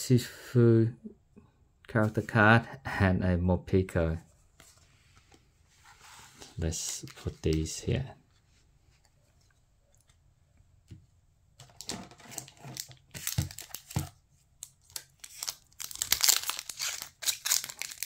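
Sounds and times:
wrapper crinkling and tearing: 11.6 - 18.0
foil wrappers rustling: 14.7 - 18.0.

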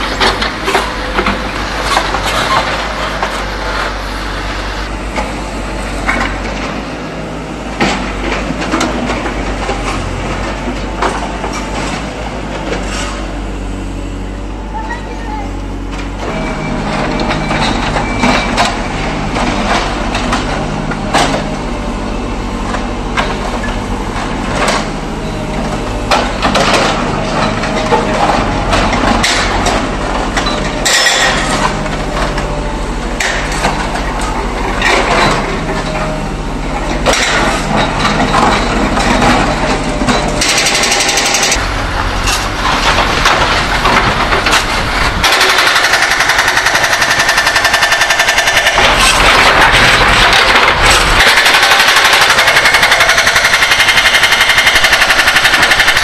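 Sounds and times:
diesel engine running: 0.0 - 56.0
hydraulic breaker hammering: 26.0 - 32.6, 36.8 - 56.0
rubble clattering into truck: 48.6 - 52.4.

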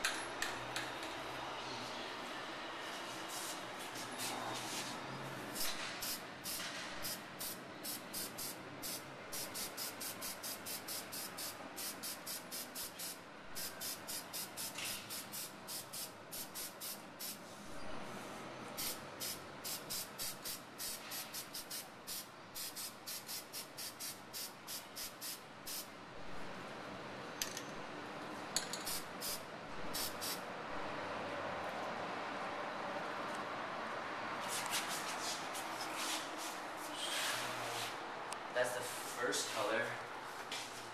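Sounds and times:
spray paint can hissing: 5.6 - 17.4, 18.8 - 25.9, 28.8 - 30.4.

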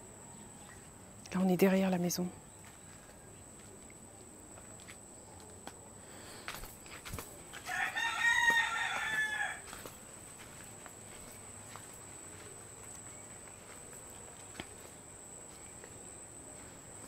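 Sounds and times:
rooster crowing: 7.6 - 9.9.

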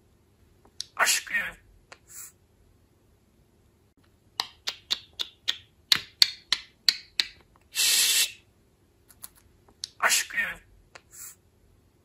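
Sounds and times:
budgerigar hissing: 0.9 - 2.4, 7.7 - 8.4, 10.0 - 11.4
budgerigar clicking: 4.4 - 7.4.

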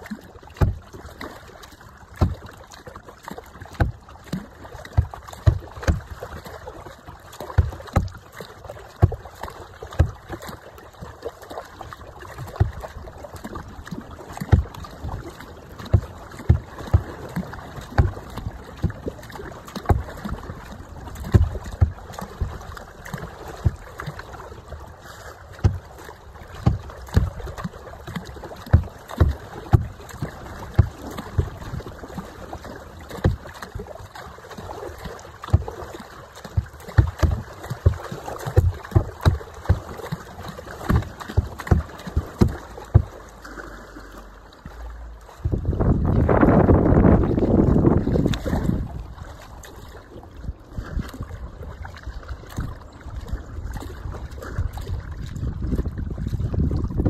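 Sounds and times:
water slapping against kayak hull: 0.0 - 57.0
wind on microphone: 45.4 - 49.4, 50.3 - 57.0.

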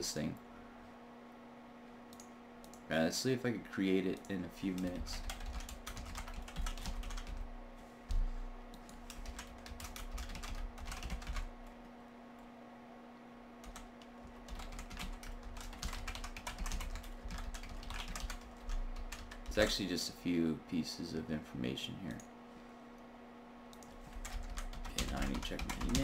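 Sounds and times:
steady low hum: 0.0 - 26.0
typing on computer keyboard: 4.7 - 7.4, 8.8 - 11.5, 13.6 - 19.7, 23.7 - 26.0.

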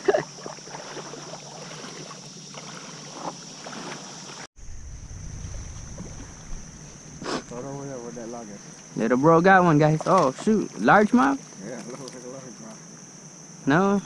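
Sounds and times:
high-pitched insect drone: 0.0 - 14.0
wind rumble on microphone: 4.6 - 8.3.

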